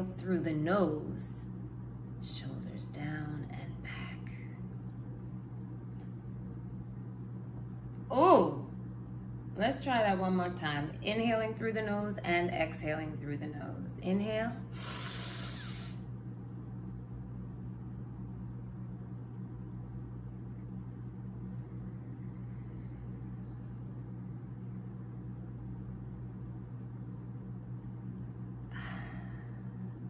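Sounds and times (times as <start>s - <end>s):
low hum: 0.0s - 30.0s
woman inhaling through nose: 14.8s - 16.0s.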